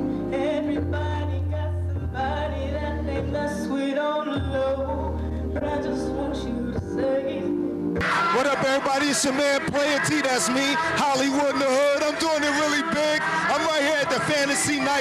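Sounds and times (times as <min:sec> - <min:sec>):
woman singing: 0:00.0 - 0:07.7
instrumental accompaniment: 0:06.8 - 0:15.0.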